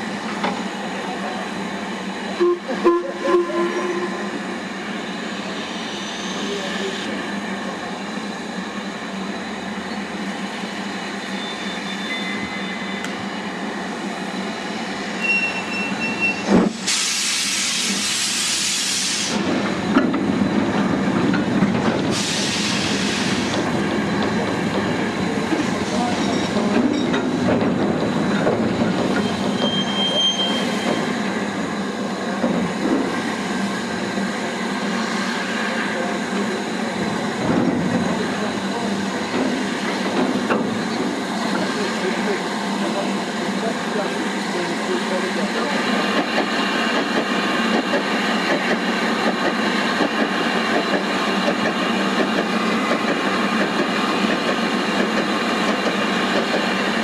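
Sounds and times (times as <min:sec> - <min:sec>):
steam locomotive rumble and hiss: 0:00.0 - 0:57.0
loud steam blasts: 0:16.6 - 0:19.9, 0:21.9 - 0:24.2.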